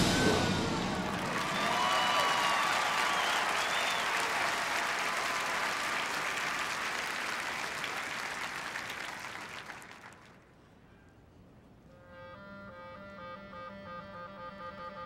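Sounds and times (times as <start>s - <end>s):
crowd whistling: 0.0s - 10.0s
stadium crowd applauding: 0.0s - 10.4s.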